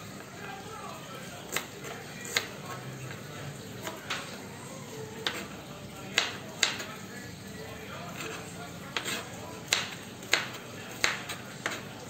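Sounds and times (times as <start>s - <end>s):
knife striking cutting board: 9.0s - 11.8s.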